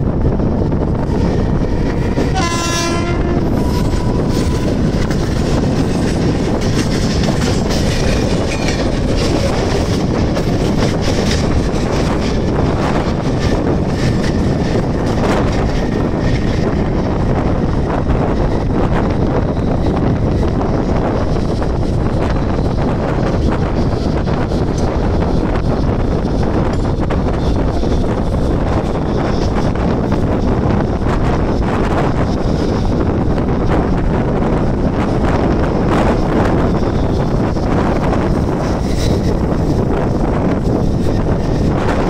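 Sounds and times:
train wheels and wind rushing: 0.0s - 42.0s
train horn: 1.1s - 4.8s.

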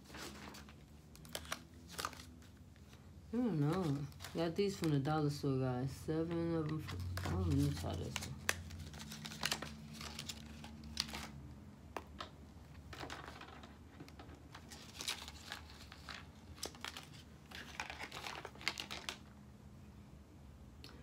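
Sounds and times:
plastic packaging crinkling: 0.0s - 5.1s, 6.6s - 11.4s, 12.9s - 19.4s.

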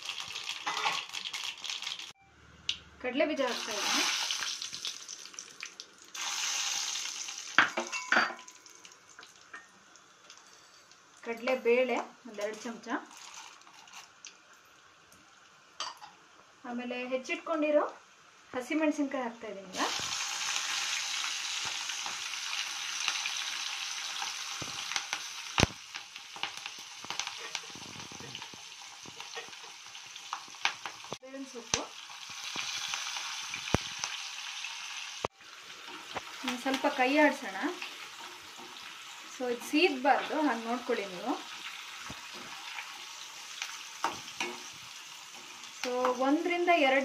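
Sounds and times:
peanuts sizzling in hot oil: 0.0s - 2.2s, 3.2s - 19.0s, 19.6s - 47.0s
small crackling pops: 13.1s - 15.2s, 24.6s - 34.2s.

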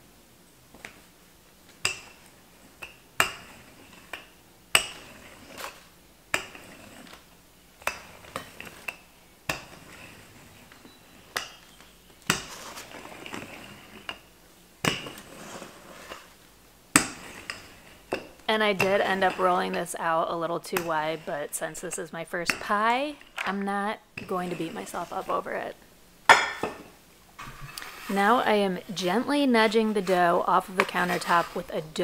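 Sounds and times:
rolling pin rasping: 1.8s - 16.4s, 17.0s - 19.9s, 29.0s - 32.0s.

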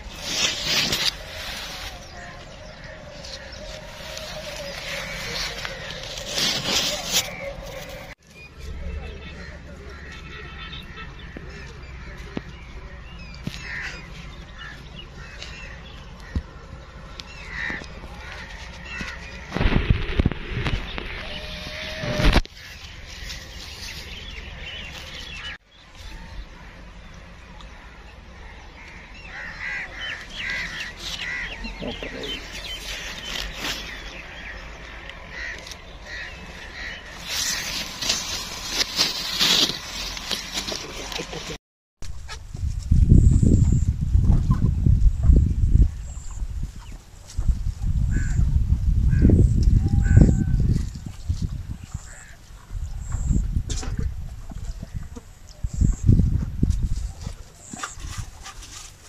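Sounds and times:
scratchy rustling: 0.0s - 2.2s, 3.2s - 8.2s, 37.2s - 41.1s
birds calling: 0.0s - 59.0s
crow cawing: 17.5s - 19.2s.

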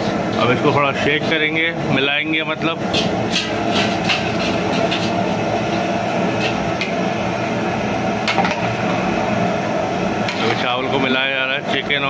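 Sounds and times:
water boiling: 0.0s - 12.0s
ladle clinking and scraping pot: 2.9s - 5.8s.

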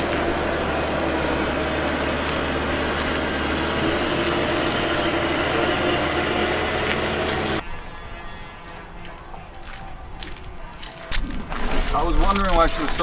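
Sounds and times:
crane motor humming: 0.0s - 7.6s.

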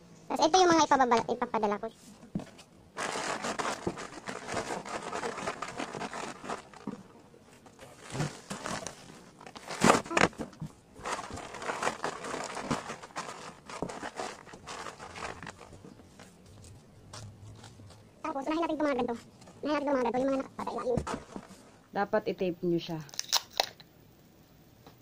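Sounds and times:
plastic packaging crinkling: 3.0s - 15.8s, 23.1s - 23.8s.

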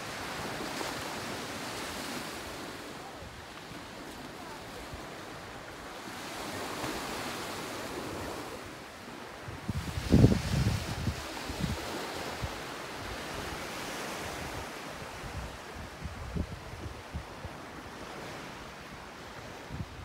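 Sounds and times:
wind buffeting microphone: 9.4s - 13.6s, 14.2s - 18.2s.

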